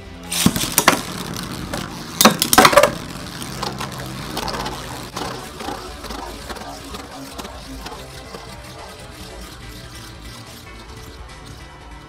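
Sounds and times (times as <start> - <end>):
spinning tops clashing metal hits: 0.3 - 8.4.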